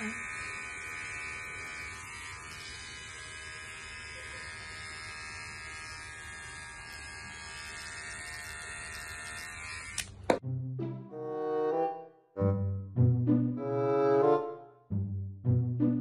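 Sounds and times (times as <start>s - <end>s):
electric hair clipper buzzing: 0.0s - 10.4s.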